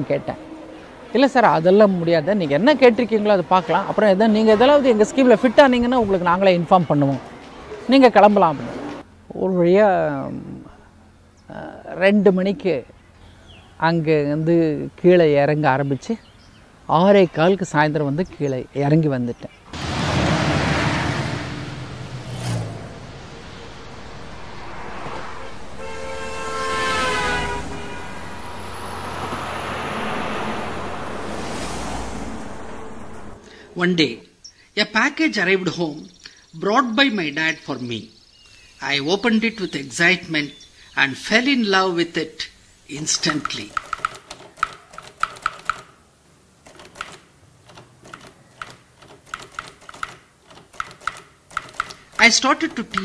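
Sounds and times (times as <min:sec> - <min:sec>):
traffic rushing by: 0:00.0 - 0:09.4, 0:19.5 - 0:34.1
vehicle horn: 0:25.0 - 0:30.8
typewriter keys being struck: 0:48.0 - 0:52.2.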